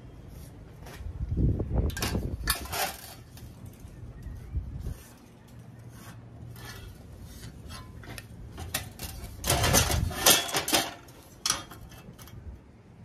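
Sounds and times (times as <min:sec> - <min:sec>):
metal tools clinking and scraping: 0:01.9 - 0:04.4, 0:05.0 - 0:12.6.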